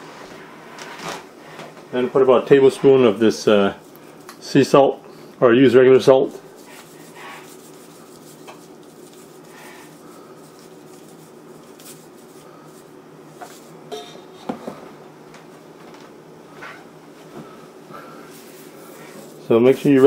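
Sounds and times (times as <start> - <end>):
steady low hum: 0.0 - 20.0
salt shaker shaking: 6.6 - 12.9.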